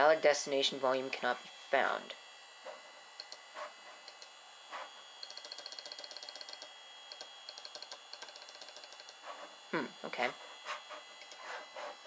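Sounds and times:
faint high whine: 0.0s - 12.0s
disk drive clicking: 5.2s - 9.2s, 11.2s - 11.5s.

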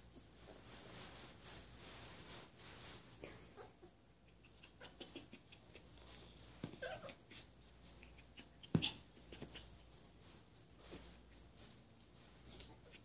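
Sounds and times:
dog whining: 6.6s - 9.7s.

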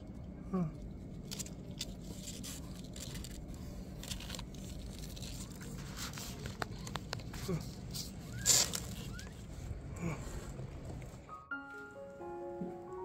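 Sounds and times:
scraping and rustling on cardboard: 1.4s - 9.8s.

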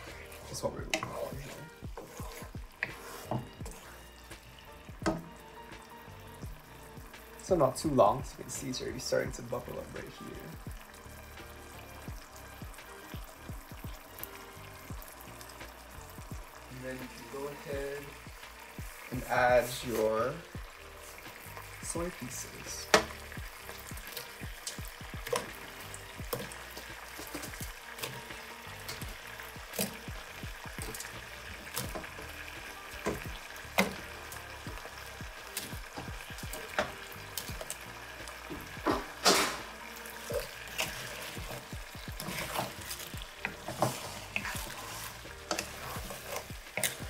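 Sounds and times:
wooden spatula clicks and scrapes: 0.0s - 4.0s, 40.2s - 47.0s
sauce bubbling and sizzling in a pan: 0.0s - 47.0s.

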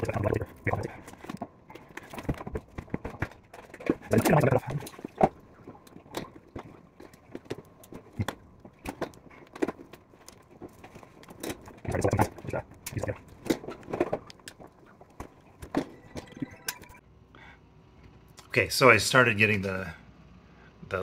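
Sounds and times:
hands rattling plastic wiring and hose: 0.0s - 15.9s.

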